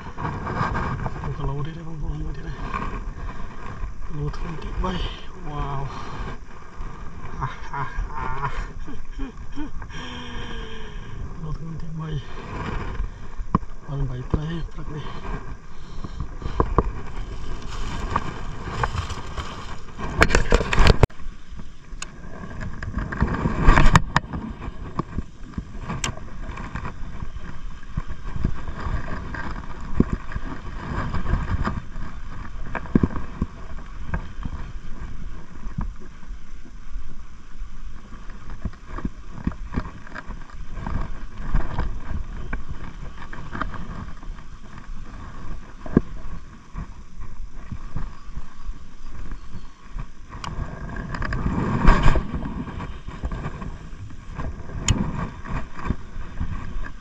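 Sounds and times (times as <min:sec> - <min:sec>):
low rumble: 0:00.0 - 0:36.1.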